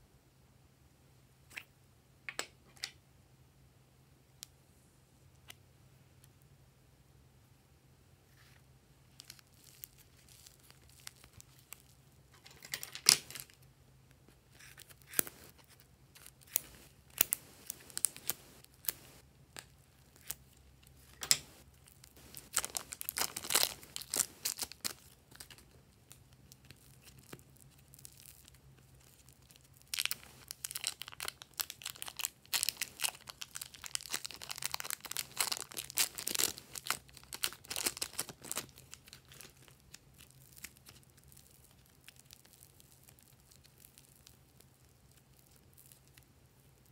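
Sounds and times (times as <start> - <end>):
plastic wrapping crinkling: 9.1 - 13.6, 14.5 - 46.9.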